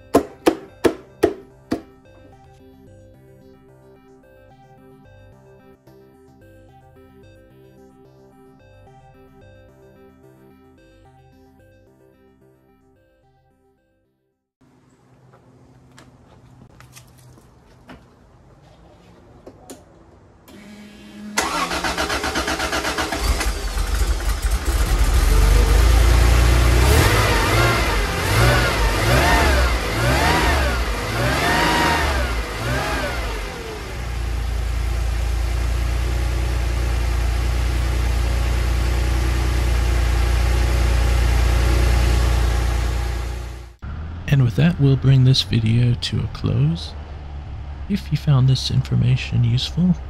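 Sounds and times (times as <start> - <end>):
car engine starting and revving: 20.5 - 50.0.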